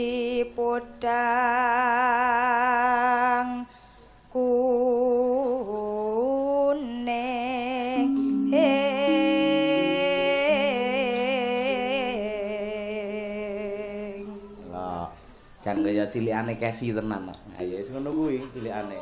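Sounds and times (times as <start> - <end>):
woman singing into a microphone: 0.0 - 14.7
low accompanying line: 7.8 - 19.0.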